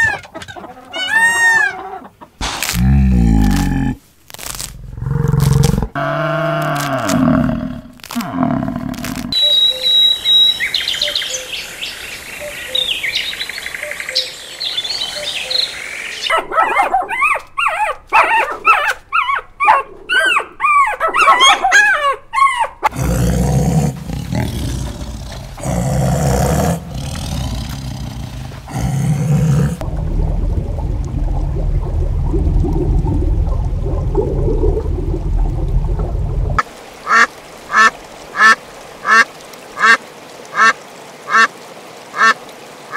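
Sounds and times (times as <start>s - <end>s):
low rumbling background: 23.7s - 36.6s.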